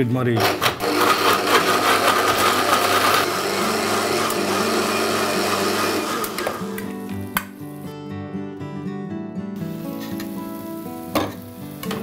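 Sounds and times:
mixer grinder running: 0.4 - 7.2.

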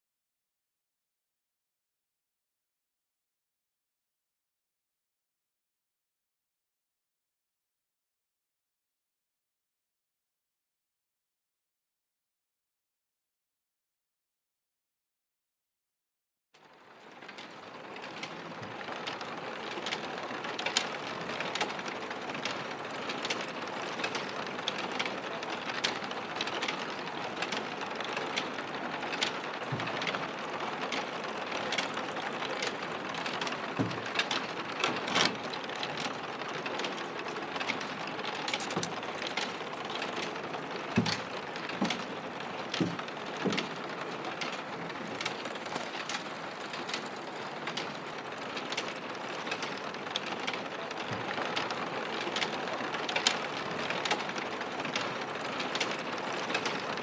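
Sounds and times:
trolley wheels rolling on steel rail: 16.6 - 57.0
chain conveyor rattling: 17.0 - 57.0
metal clicks and clanks: 22.4 - 48.0.

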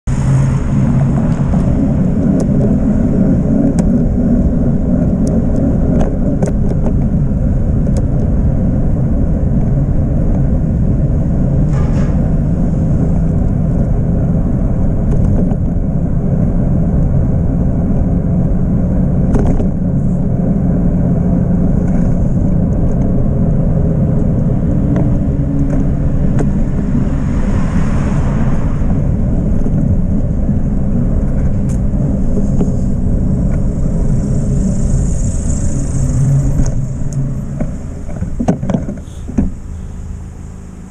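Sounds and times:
wind and road rumble: 0.0 - 40.9
sharp clicks and knocks: 36.6 - 39.6.

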